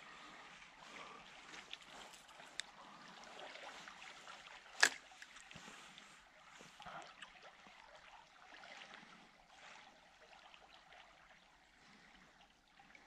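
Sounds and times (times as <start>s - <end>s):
faint river flowing: 0.0s - 13.0s
soft rustles and ticks: 1.4s - 2.8s, 3.6s - 7.2s.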